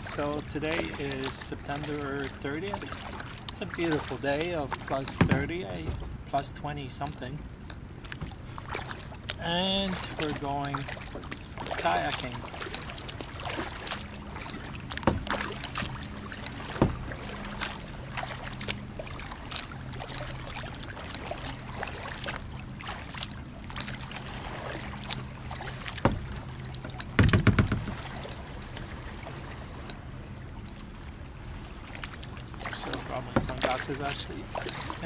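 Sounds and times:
paddle splashing in water: 0.0s - 35.0s
water sloshing against hull: 0.0s - 35.0s
knocks on plastic hull: 5.2s - 6.1s, 27.2s - 28.0s.

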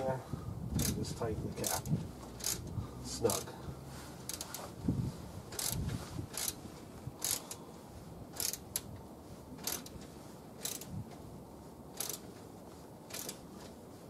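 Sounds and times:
socket ratchet clicking: 0.8s - 1.0s, 1.6s - 2.7s, 4.3s - 4.6s, 5.5s - 6.6s, 7.2s - 7.5s, 8.4s - 8.9s, 9.6s - 10.0s, 10.6s - 10.9s, 12.0s - 12.2s, 13.1s - 13.4s.

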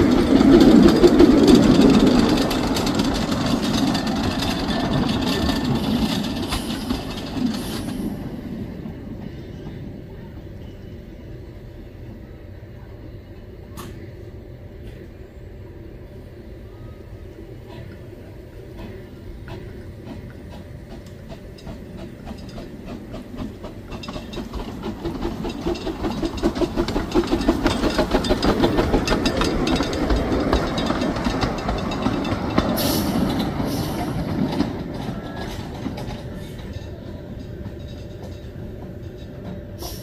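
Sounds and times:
steam hissing: 0.0s - 8.4s, 31.8s - 34.8s, 39.7s - 40.0s
wheels clicking over rail joints: 0.0s - 10.0s, 18.7s - 40.0s
steam locomotive chuffing: 0.0s - 12.4s, 13.7s - 40.0s.

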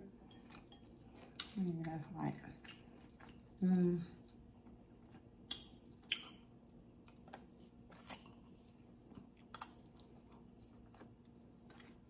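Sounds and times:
person chewing: 0.3s - 1.6s, 2.6s - 3.6s, 4.2s - 12.0s.

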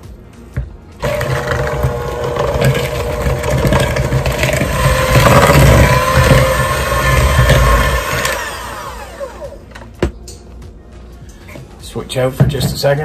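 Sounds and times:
electric hand mixer whine: 1.0s - 9.6s.

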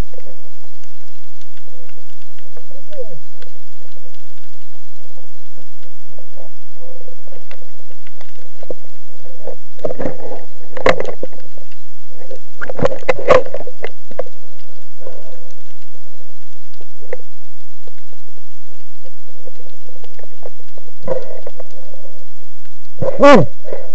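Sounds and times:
rushing bubbling water: 0.0s - 18.0s
muffled underwater noise: 0.0s - 23.9s.

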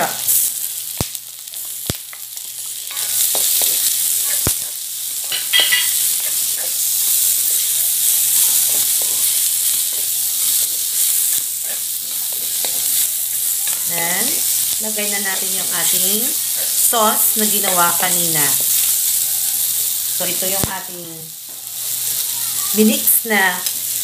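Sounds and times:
vegetables sizzling in a wok: 0.0s - 24.0s
spatula scraping and tapping pan: 1.6s - 13.8s.

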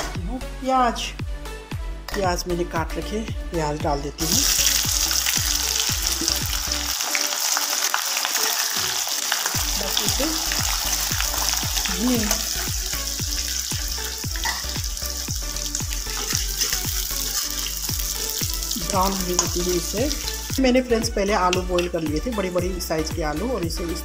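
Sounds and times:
onions sizzling in oil: 4.2s - 20.6s.

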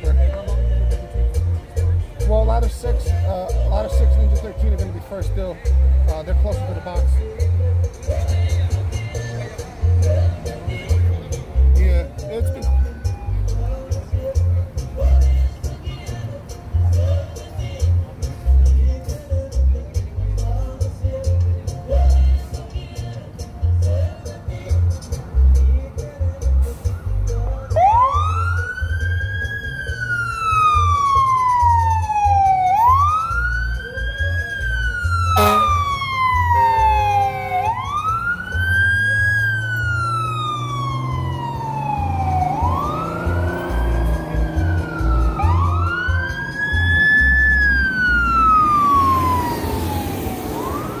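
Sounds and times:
diesel engines rumbling: 0.0s - 51.0s
fire siren wailing: 27.5s - 51.0s.

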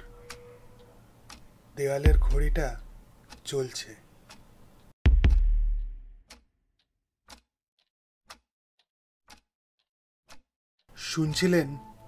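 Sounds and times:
wall clock ticking: 0.0s - 4.9s, 6.2s - 8.5s, 9.3s - 12.0s
dramatic double hit with low boom: 2.1s - 2.9s, 5.1s - 6.2s.

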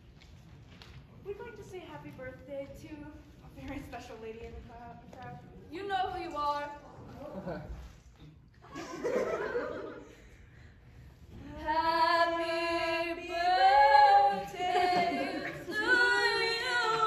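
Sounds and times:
unaccompanied voices singing: 11.4s - 17.0s.

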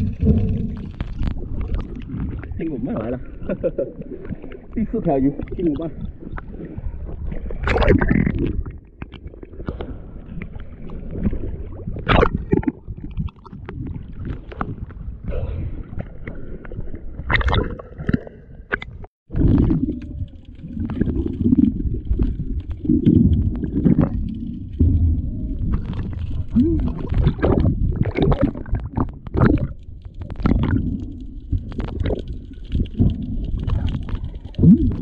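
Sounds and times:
water sloshing and gurgling: 0.0s - 35.0s
sharp water splashes: 7.4s - 8.6s
low rumble: 19.3s - 35.0s.

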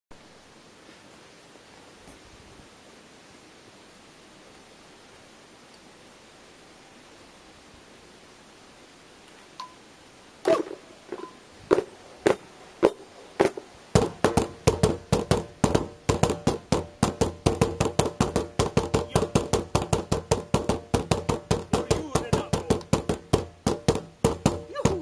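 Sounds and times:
hollow knocks on plastic bins: 11.7s - 25.0s.

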